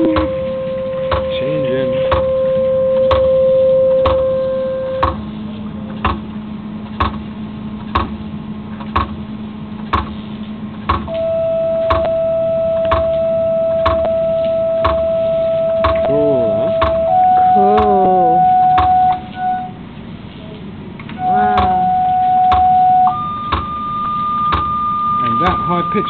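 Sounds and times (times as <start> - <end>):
test tone through subwoofer: 0.0 - 6.4, 11.1 - 19.7, 21.2 - 26.0.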